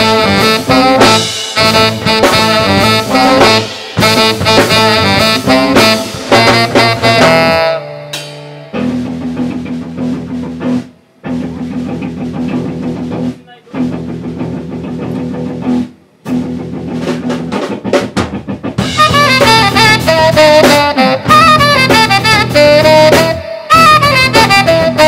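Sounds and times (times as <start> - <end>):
saxophone solo: 0.0 - 8.9, 18.8 - 25.0
live band groove: 0.0 - 25.0.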